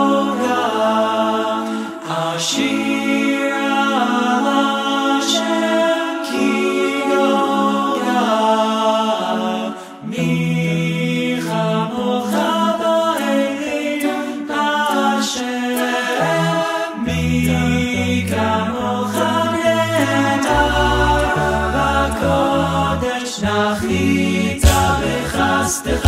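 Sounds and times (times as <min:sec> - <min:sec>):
a cappella group singing: 0:00.0 - 0:26.0.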